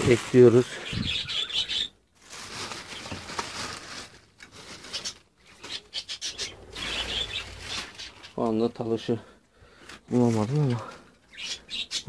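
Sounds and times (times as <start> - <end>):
plastic bags rustling: 0.0 - 8.7.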